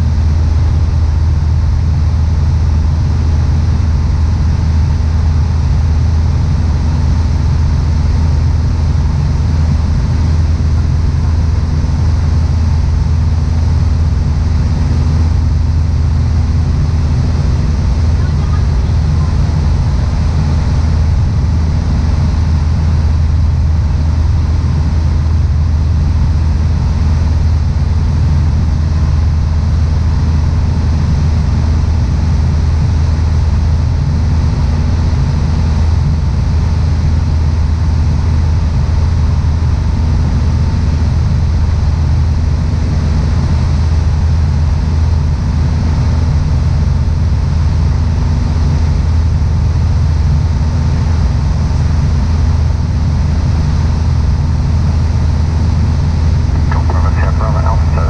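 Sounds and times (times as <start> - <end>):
airplane engine drone in cockpit: 0.0 - 58.0.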